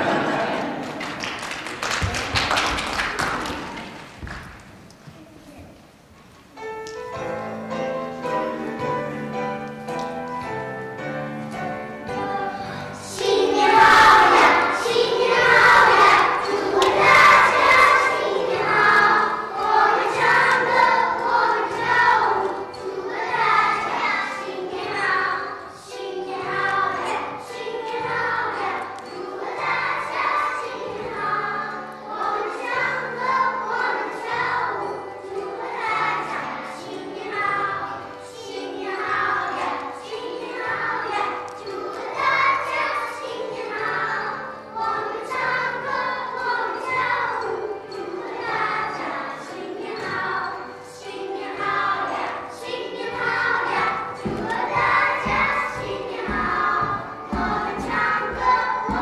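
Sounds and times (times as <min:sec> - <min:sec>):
children singing: 0:00.0 - 0:00.9, 0:07.7 - 0:59.0
piano accompaniment: 0:06.4 - 0:59.0.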